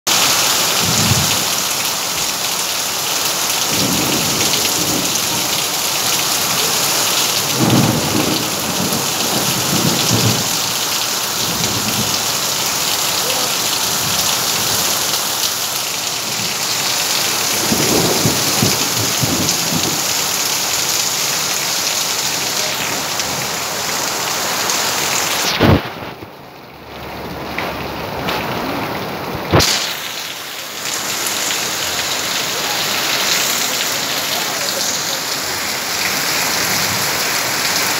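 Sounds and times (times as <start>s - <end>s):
heavy rain pouring: 0.1s - 37.9s
thunder rumbling: 0.8s - 1.5s, 3.6s - 12.4s, 16.2s - 20.8s, 25.4s - 26.5s.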